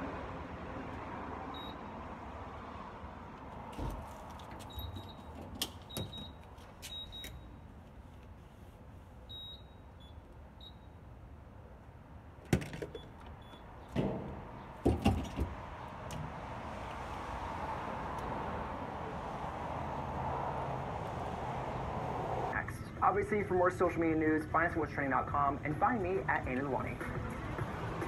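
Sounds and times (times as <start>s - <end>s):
fuel nozzle clunks and rattles: 12.4s - 16.4s.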